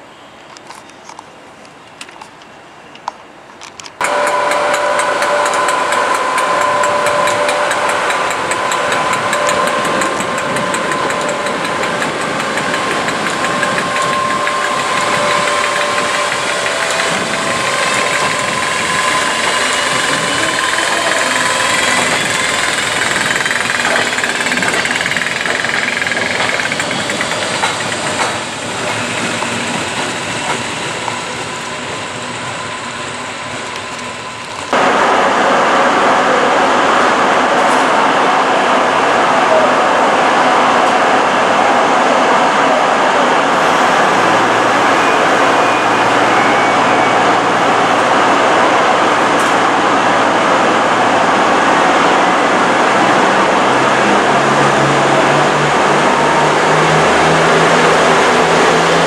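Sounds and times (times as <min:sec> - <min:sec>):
rising whine: 0:04.0 - 0:28.0
electric locomotives passing: 0:04.0 - 0:59.0.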